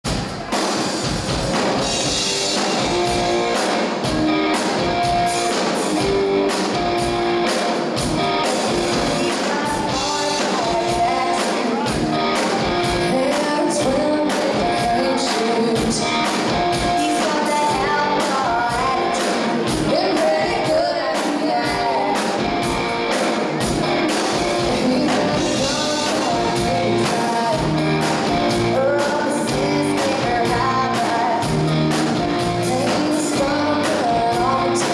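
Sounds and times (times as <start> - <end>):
drum kit beat: 0.0 - 34.9
electric guitar: 0.1 - 34.9
woman singing lead: 8.2 - 34.9.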